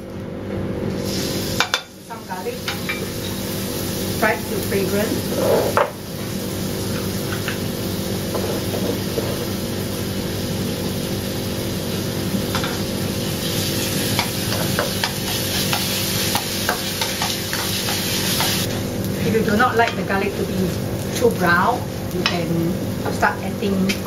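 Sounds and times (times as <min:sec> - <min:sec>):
steady low hum: 0:00.0 - 0:24.0
garlic sizzling in hot oil: 0:01.0 - 0:24.0
spatula scraping a wok: 0:05.1 - 0:05.8, 0:08.3 - 0:09.6, 0:13.6 - 0:18.8.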